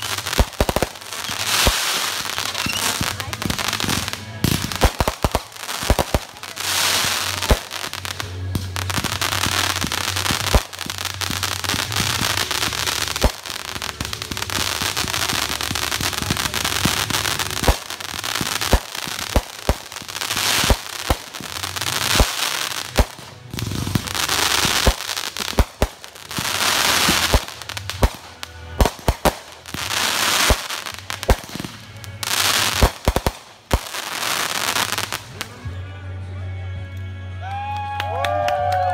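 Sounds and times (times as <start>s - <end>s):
fireworks bangs: 0.0s - 35.5s
fireworks crackling sizzle: 0.0s - 35.8s.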